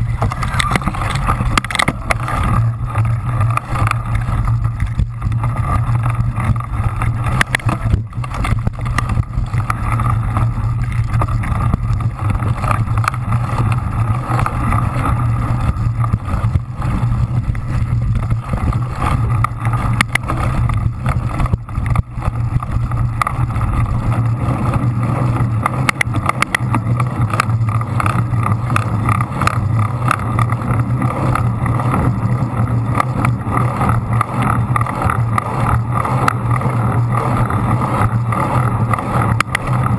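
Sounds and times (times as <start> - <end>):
bike rolling vibration: 0.0 - 39.9.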